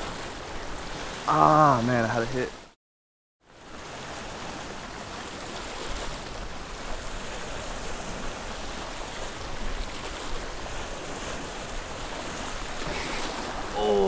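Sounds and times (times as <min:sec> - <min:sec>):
small waves splashing on rocks: 0:00.0 - 0:02.8, 0:03.5 - 0:14.0
wind rumbling on microphone: 0:03.6 - 0:14.0.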